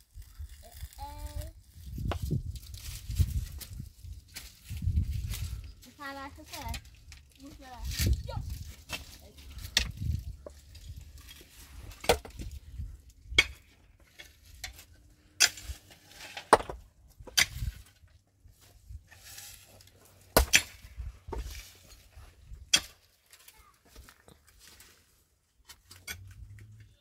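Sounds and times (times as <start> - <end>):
stones and dirt rattling: 1.8 - 18.2
pickaxe striking rock: 20.4 - 20.8.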